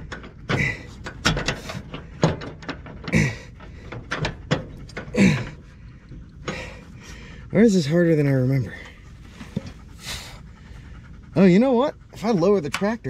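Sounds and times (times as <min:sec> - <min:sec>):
metal knocks and clanks: 0:00.0 - 0:06.8
person grunting with effort: 0:05.1 - 0:05.6.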